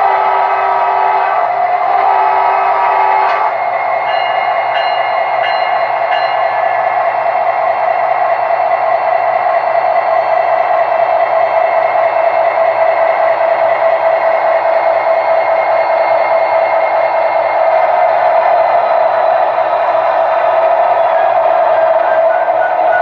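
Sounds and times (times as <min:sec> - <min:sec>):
multi-note train horn: 0:00.0 - 0:03.6.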